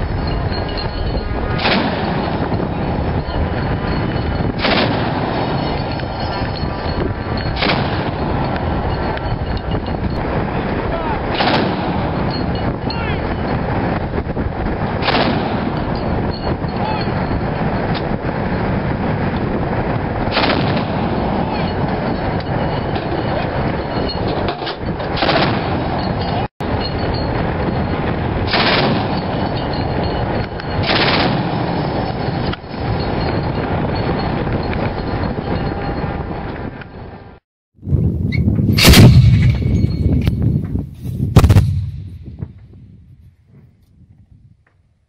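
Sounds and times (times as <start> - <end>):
autocannon automatic fire bursts: 4.6 - 5.4, 28.5 - 29.2, 30.8 - 31.6.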